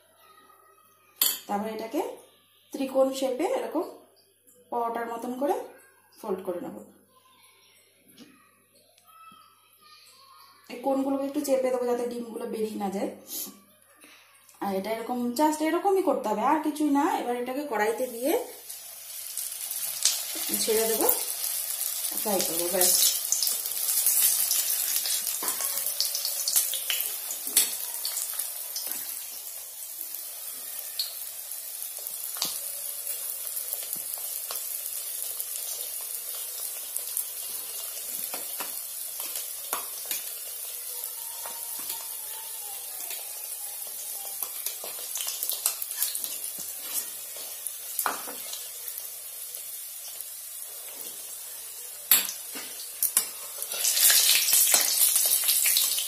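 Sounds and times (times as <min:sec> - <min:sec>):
food sizzling in hot oil: 0:14.7 - 0:56.0
oil pops and crackles: 0:32.4 - 0:32.6.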